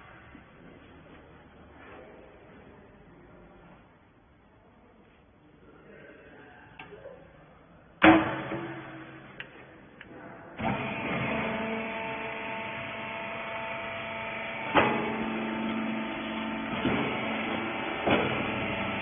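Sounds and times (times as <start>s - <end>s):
sharp clunk: 8.0s - 9.4s
motor and hydraulic pump humming: 10.6s - 19.0s.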